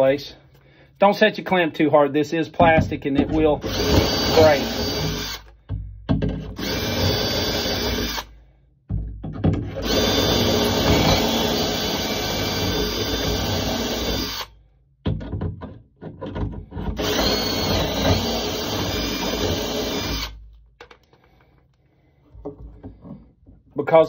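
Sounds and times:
cordless drill boring wood: 3.4s - 5.6s, 6.5s - 8.4s, 9.6s - 14.5s, 16.8s - 20.4s.

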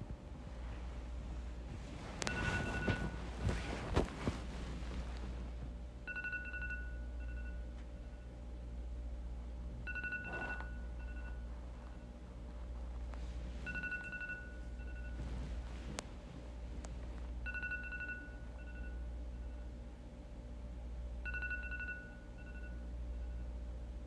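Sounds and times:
steady low hum: 0.0s - 24.0s
phone alarm beeping: 2.2s - 3.2s, 6.1s - 8.2s, 9.8s - 11.5s, 13.6s - 15.3s, 17.4s - 19.0s, 21.2s - 22.8s.

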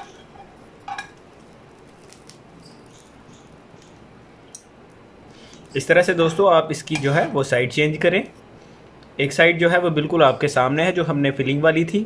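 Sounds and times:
metal utensil clinking on pan: 0.0s - 1.2s
bread sizzling in a pan: 0.0s - 4.6s.

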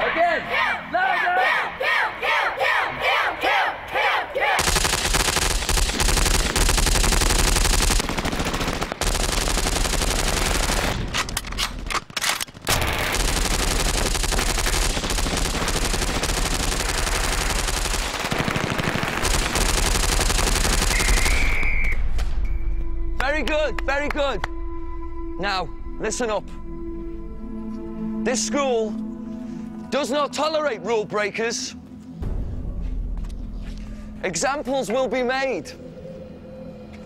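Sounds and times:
group shouting in unison: 0.0s - 4.6s
automatic rifle gunfire: 4.6s - 21.6s.

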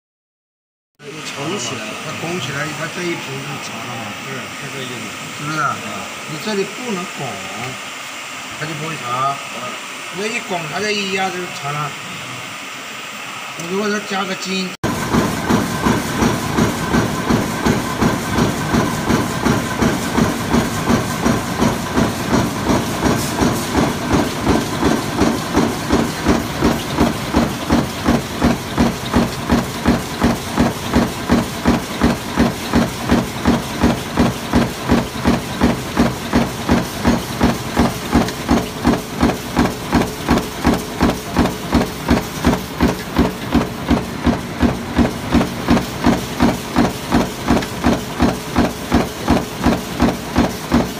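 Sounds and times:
stamping press strokes: 14.8s - 50.9s.

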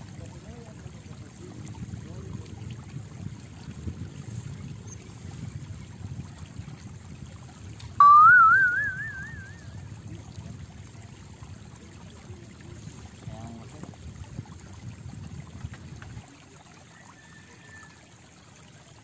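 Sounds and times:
rising wavering whistle tone: 8.0s - 9.7s.

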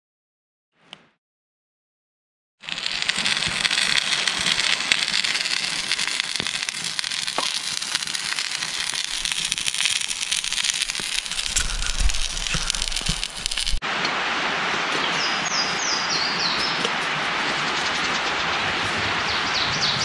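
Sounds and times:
campfire crackling and popping: 2.6s - 13.8s.

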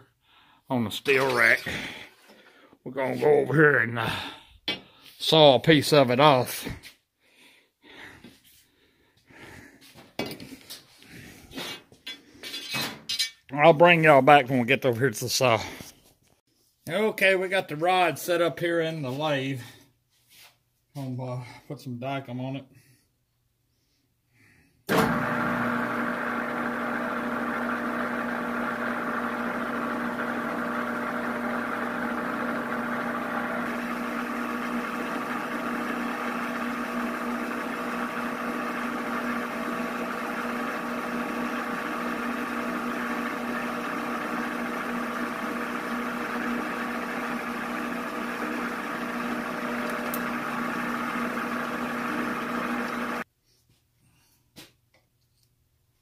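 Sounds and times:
lathe motor hum with gear whine: 25.1s - 53.2s.

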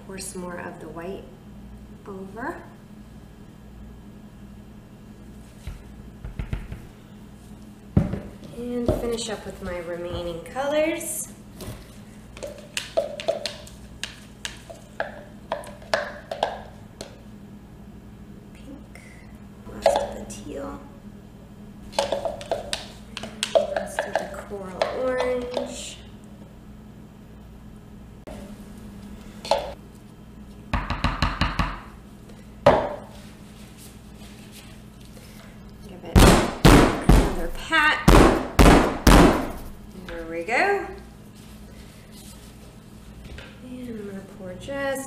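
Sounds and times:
plastic cup knocks and clicks: 12.4s - 16.7s, 21.9s - 25.7s.

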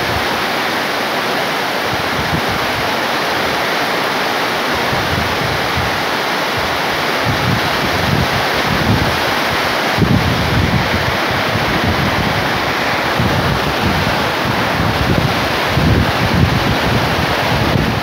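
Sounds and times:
heavy rain on foliage: 0.0s - 18.0s
wind buffeting microphone: 1.9s - 3.5s, 4.7s - 18.0s.

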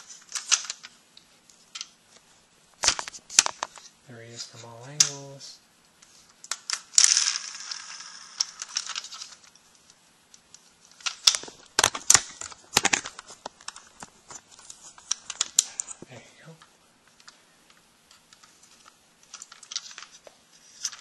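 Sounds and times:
plastic parts clicking and knocking: 0.2s - 0.9s, 2.8s - 3.9s, 10.4s - 16.1s, 17.1s - 21.0s.

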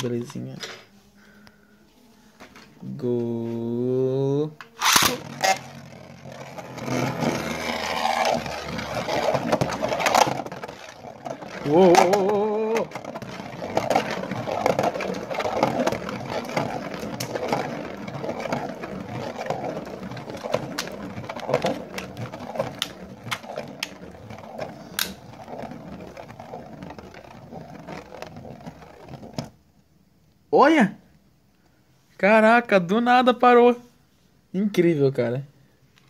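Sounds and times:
sharp clicks of spinning top: 4.6s - 5.9s
spinning top whirring scrape: 4.6s - 29.6s.

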